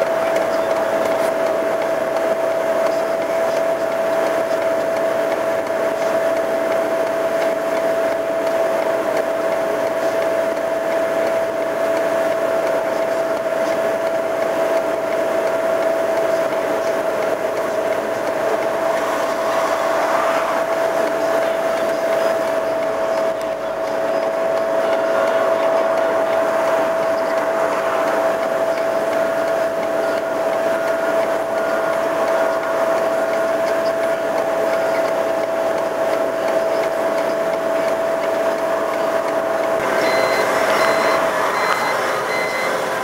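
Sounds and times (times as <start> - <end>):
constant mechanical whine: 0.0 - 43.0
road sweeper engine: 0.0 - 43.0.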